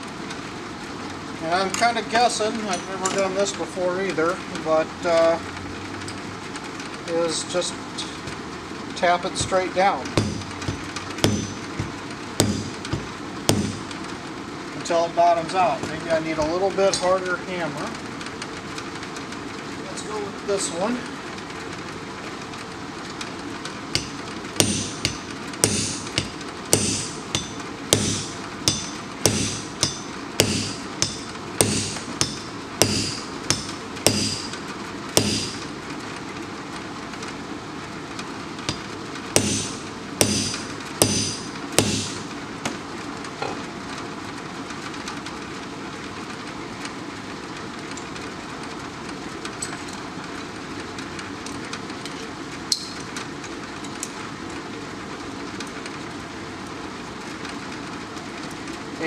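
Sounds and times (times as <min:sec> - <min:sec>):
fan hissing: 0:09.2 - 0:14.3, 0:23.9 - 0:35.9, 0:38.7 - 0:42.6
hammer tapping metal: 0:09.4 - 0:09.6, 0:10.2 - 0:14.0, 0:24.0 - 0:34.6, 0:35.2 - 0:35.7, 0:38.7 - 0:42.3.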